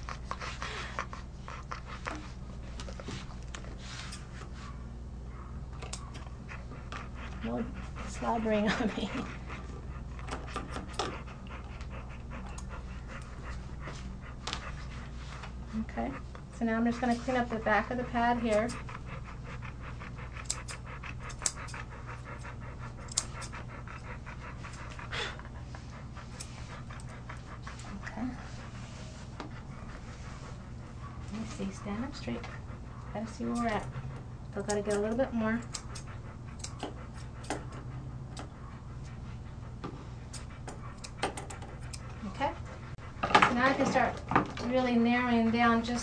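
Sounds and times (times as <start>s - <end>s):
dog panting rapidly: 0.0s - 4.9s, 5.9s - 46.0s
steady low hum: 0.0s - 46.0s
grooming shears snipping: 5.8s - 7.6s, 20.2s - 25.1s, 26.3s - 28.0s, 31.3s - 33.9s, 34.6s - 38.6s, 40.3s - 42.2s
scissors snipping fur: 20.4s - 21.8s, 23.0s - 23.6s, 33.4s - 33.9s, 34.6s - 38.5s, 40.3s - 42.0s.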